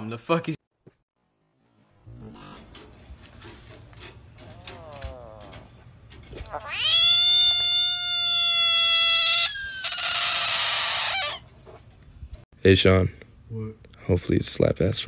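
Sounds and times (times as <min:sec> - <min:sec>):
frog screaming wail: 0:06.4 - 0:11.4.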